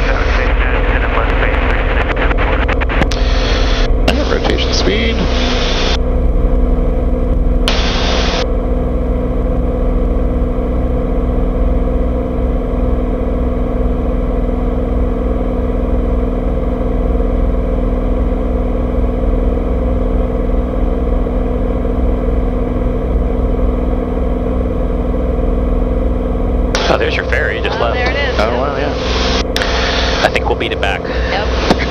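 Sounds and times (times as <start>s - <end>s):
airplane engine drone: 0.0s - 31.9s.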